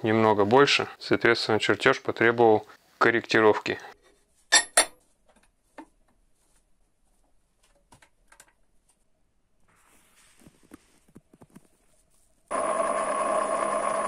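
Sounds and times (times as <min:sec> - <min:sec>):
sharp metal clank: 0:04.5 - 0:05.0.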